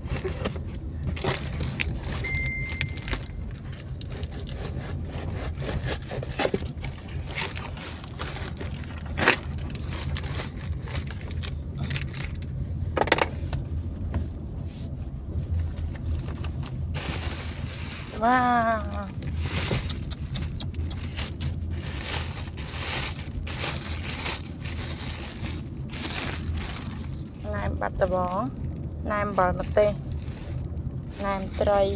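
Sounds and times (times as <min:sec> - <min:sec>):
steady low hum: 0:00.0 - 0:31.9
cardboard and paper tearing: 0:03.6 - 0:12.2, 0:17.0 - 0:27.2
knife cutting cardboard box: 0:04.0 - 0:08.6.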